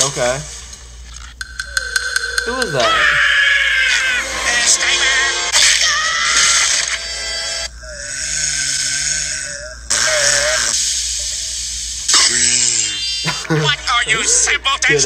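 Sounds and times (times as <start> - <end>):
distorted cartoon audio: 1.4 - 11.3, 12.1 - 15.0
warbling voice-like tone: 1.6 - 7.0, 7.7 - 10.8.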